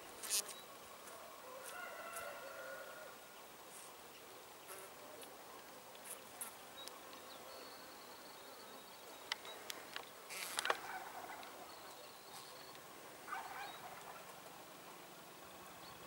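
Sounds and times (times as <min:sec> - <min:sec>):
brief rustle: 0:09.3 - 0:11.5.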